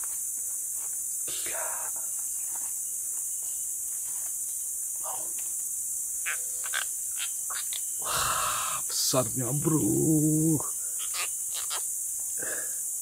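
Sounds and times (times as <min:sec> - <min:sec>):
forest insects droning: 0:00.0 - 0:13.0.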